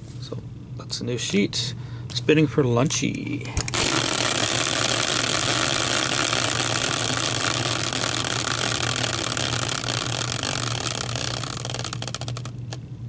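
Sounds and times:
caster wheel whirring and rattling: 0:03.6 - 0:12.8.

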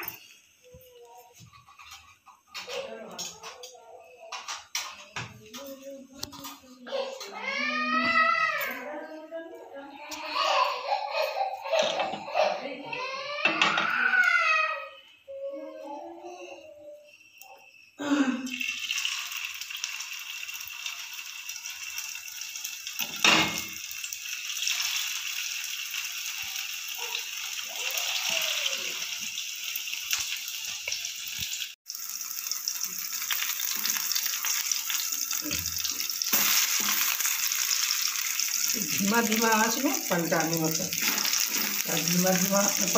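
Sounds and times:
patties sizzling in oil: 0:00.0 - 0:03.3, 0:18.5 - 0:42.9.

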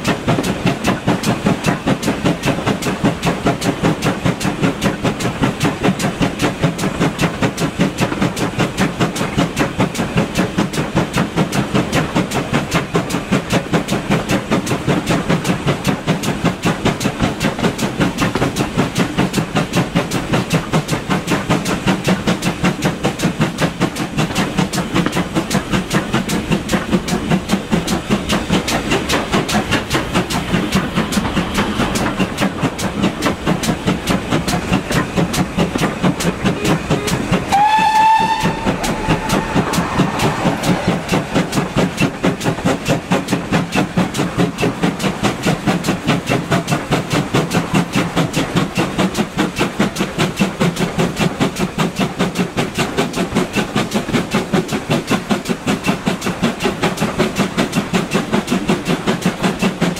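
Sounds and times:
steam locomotive exhaust chuffs: 0:00.0 - 0:59.9
train wheels clattering: 0:00.0 - 0:59.9
steam whistle rising in pitch: 0:37.5 - 0:40.8.

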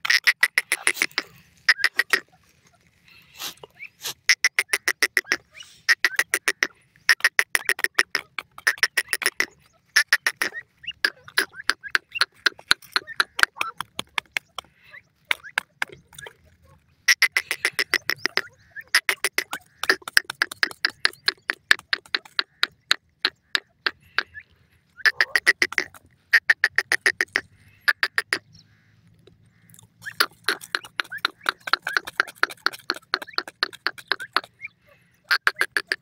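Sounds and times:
bird making sharp clicks: 0:06.0 - 0:16.4, 0:17.1 - 0:24.3, 0:25.0 - 0:34.6.

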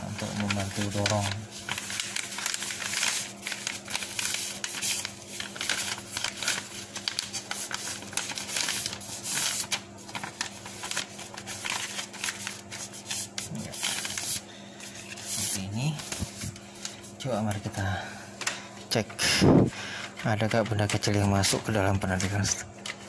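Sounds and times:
paper rustling and crackling: 0:00.0 - 0:17.6.

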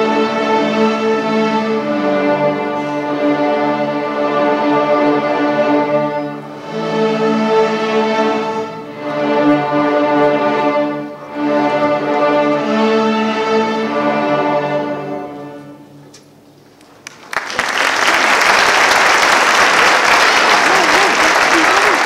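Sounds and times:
string orchestra playing chords: 0:00.0 - 0:16.6
audience applauding: 0:16.8 - 0:22.0.

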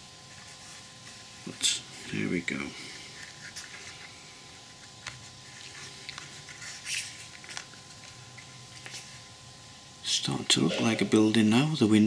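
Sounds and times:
faint steady hum: 0:00.0 - 0:12.0
papery rustle: 0:04.9 - 0:09.2.

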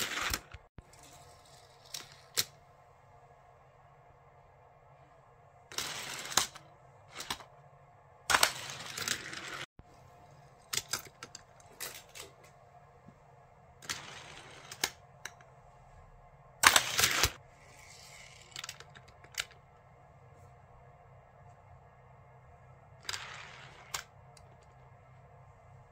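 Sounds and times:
toy car wheels rolling on track: 0:13.8 - 0:15.0, 0:16.6 - 0:19.5.

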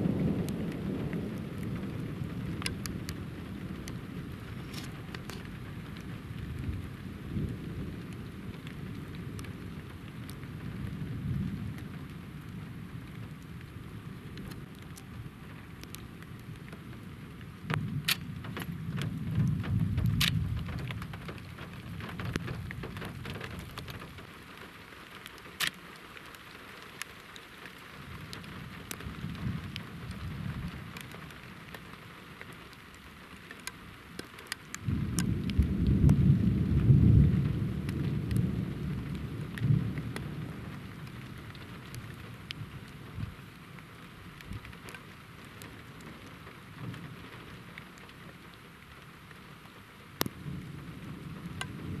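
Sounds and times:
thunder rumbling: 0:00.0 - 0:15.3, 0:17.0 - 0:24.3, 0:28.1 - 0:31.4, 0:34.8 - 0:43.5, 0:50.2 - 0:52.0
steady rain: 0:00.0 - 0:52.0.

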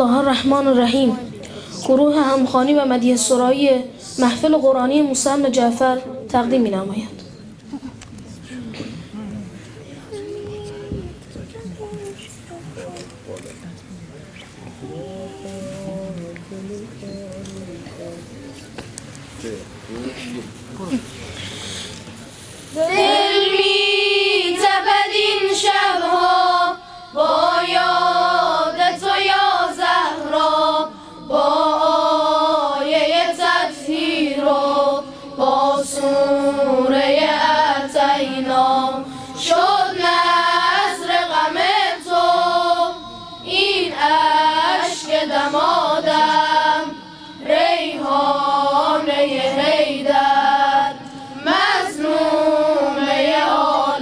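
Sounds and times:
boys' choir singing: 0:22.8 - 0:54.0.

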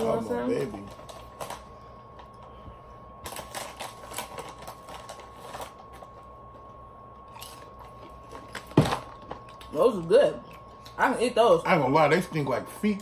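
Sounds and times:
plastic chip bag crinkling: 0:00.0 - 0:02.4, 0:03.2 - 0:06.5.

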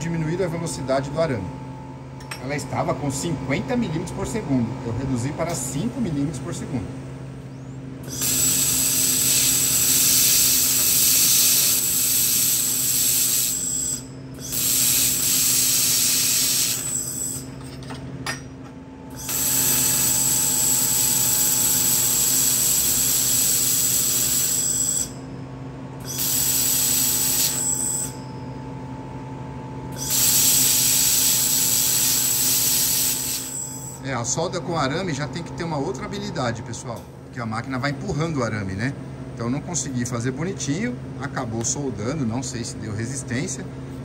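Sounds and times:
machine humming: 0:00.0 - 0:41.3
laser welder hissing: 0:08.0 - 0:17.5, 0:19.1 - 0:25.2, 0:26.0 - 0:28.2, 0:30.0 - 0:34.0.

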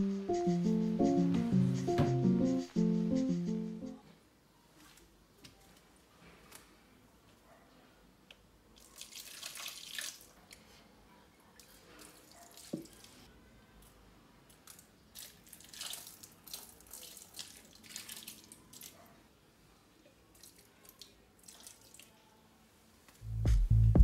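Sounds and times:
water trickling into soil: 0:08.8 - 0:10.6, 0:14.5 - 0:19.0, 0:20.3 - 0:22.2.

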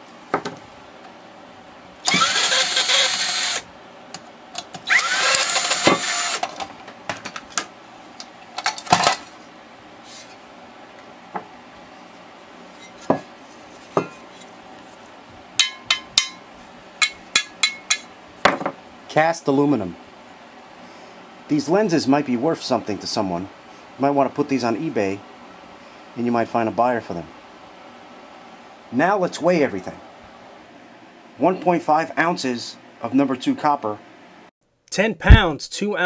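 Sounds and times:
power drill running: 0:02.0 - 0:03.7, 0:04.8 - 0:06.4.

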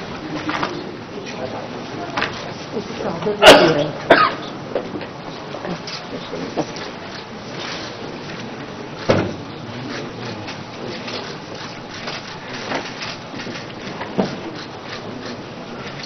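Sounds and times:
group shuffling: 0:00.0 - 0:16.0.

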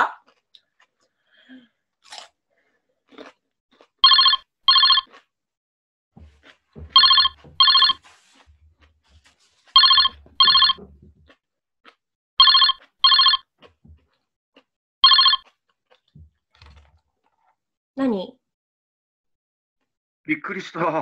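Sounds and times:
electronic phone ringtone: 0:04.0 - 0:05.1, 0:07.0 - 0:08.0, 0:09.8 - 0:10.8, 0:12.4 - 0:13.4, 0:15.0 - 0:15.4
handling rustling and knocks: 0:06.2 - 0:11.3, 0:16.1 - 0:17.5.

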